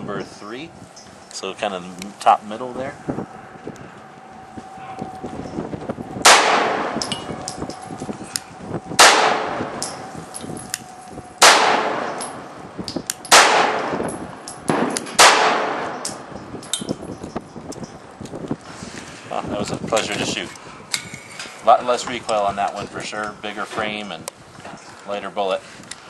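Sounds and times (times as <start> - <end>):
pistol shots with echo: 6.2 - 7.3, 9.0 - 10.0, 11.4 - 12.5, 13.3 - 16.3.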